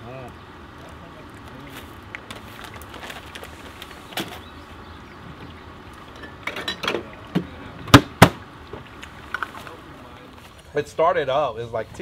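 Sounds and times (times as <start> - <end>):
drink containers clinking: 6.1 - 7.1.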